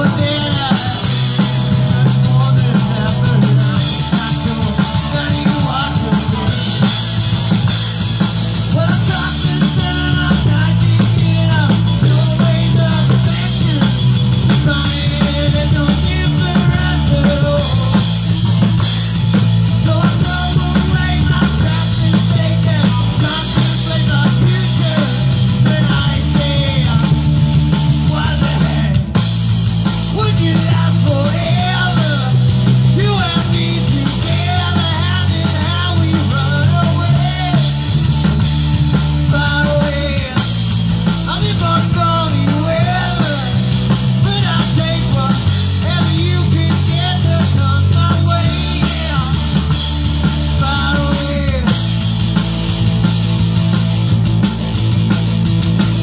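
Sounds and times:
person singing: 0.0 - 7.0, 8.6 - 18.2, 19.8 - 27.3, 28.0 - 29.2, 30.1 - 38.0, 41.3 - 49.8, 50.5 - 51.8
drum kit: 0.0 - 56.0
electric guitars: 0.0 - 56.0.

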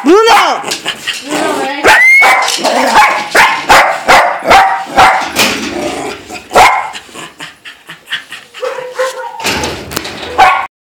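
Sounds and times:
dog barking: 1.8 - 5.4, 6.5 - 7.0, 8.6 - 9.5, 10.3 - 10.7.

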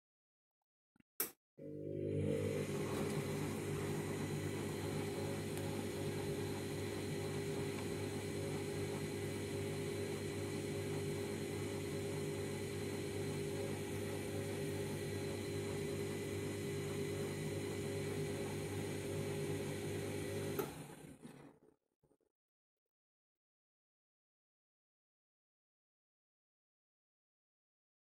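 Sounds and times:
washing machine motor hum: 1.6 - 21.4.

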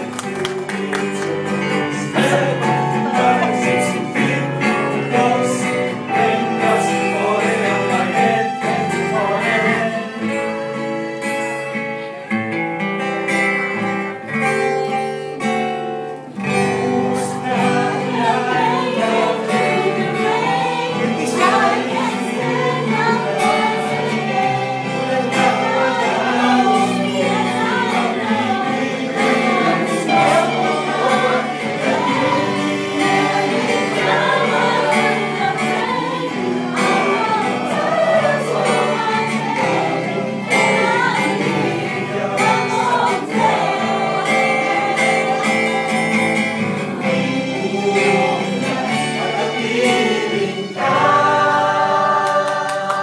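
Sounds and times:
music with singing: 0.0 - 53.0.

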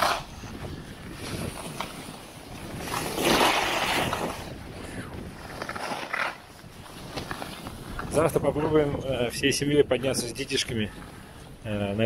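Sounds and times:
skis scraping over snow: 0.0 - 8.7
wind on microphone: 0.0 - 12.0.

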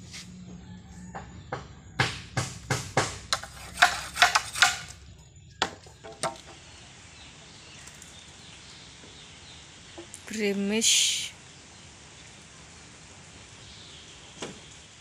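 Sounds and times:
machete chopping bamboo: 2.0 - 5.0, 5.6 - 6.6.

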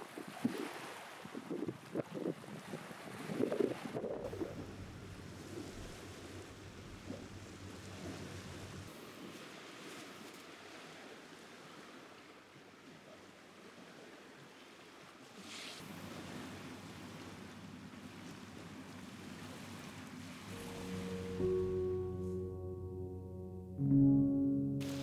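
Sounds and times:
small waves on a beach: 0.0 - 21.9
light breeze: 1.0 - 10.6.

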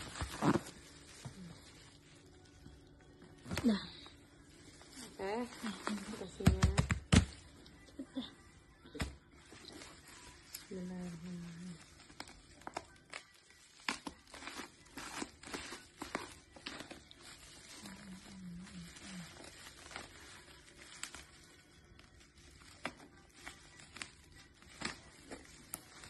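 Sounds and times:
bubble wrap crinkling: 0.0 - 26.0
scissors snipping plastic: 12.1 - 17.1.

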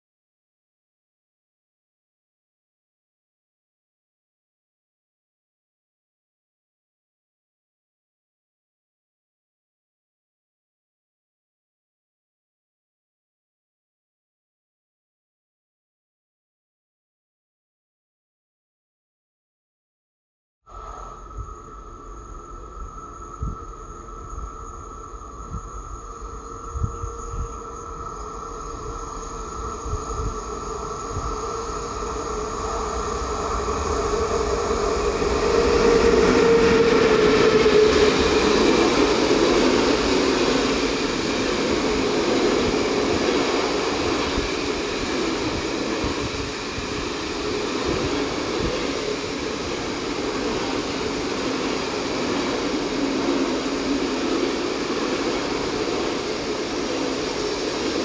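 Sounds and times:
freight train passing: 20.7 - 58.0
train wheels rolling on rails: 21.9 - 58.0.

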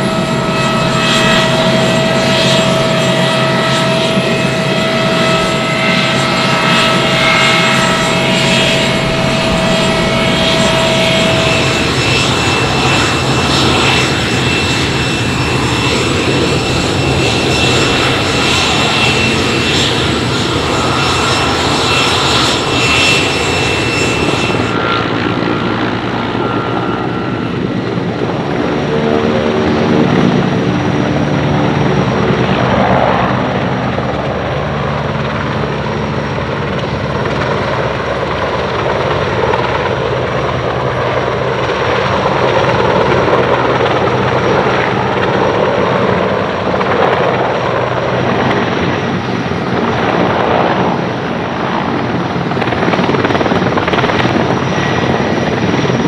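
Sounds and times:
high whining tones: 0.0 - 31.1
helicopter engines and rotors: 0.0 - 56.0.

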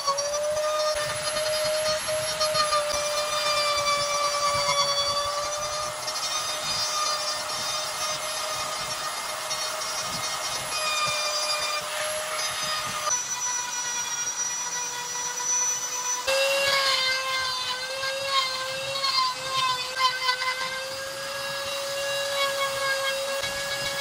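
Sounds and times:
rotary tool whine grinding wood: 0.0 - 24.0.

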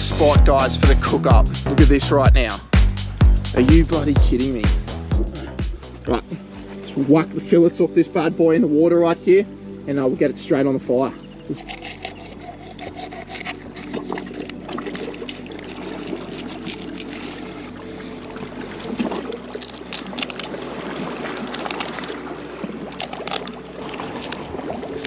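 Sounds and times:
seawater splashing and trickling: 10.0 - 25.0
sharp splashes: 13.2 - 25.0.

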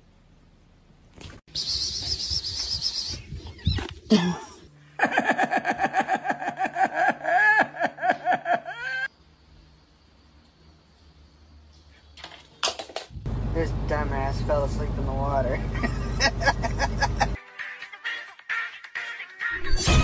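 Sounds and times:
person laughing: 4.0 - 9.1, 15.6 - 17.4.

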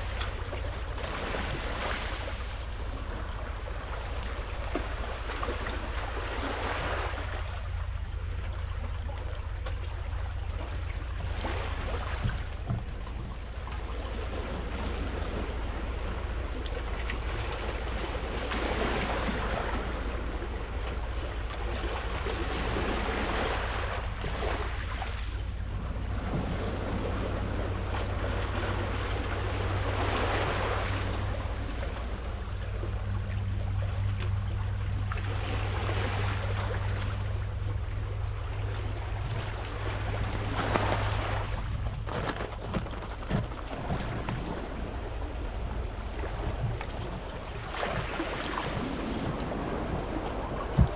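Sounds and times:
steady low hum: 0.0 - 50.9
wind on microphone: 39.1 - 50.9
waves washing onto pebbles: 39.4 - 45.1.

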